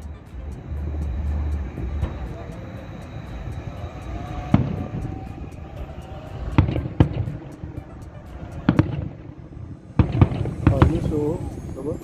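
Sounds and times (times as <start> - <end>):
firework shells booming: 4.4 - 11.3.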